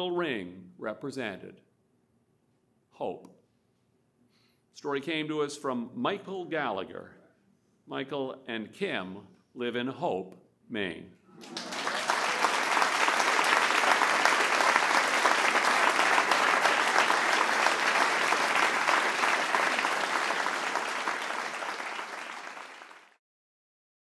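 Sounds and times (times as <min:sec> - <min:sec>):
audience applauding: 0:11.4 - 0:23.2.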